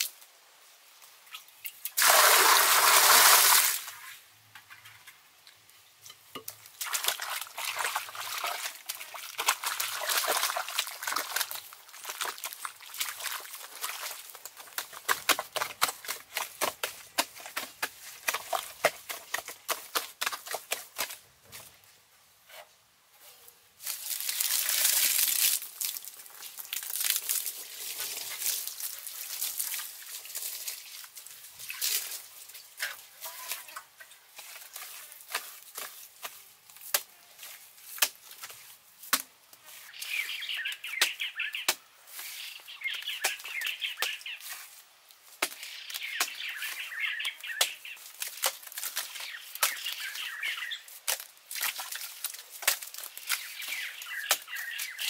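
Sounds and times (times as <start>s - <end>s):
mud squelching and slapping: 6.7s - 21.2s, 45.4s - 55.0s.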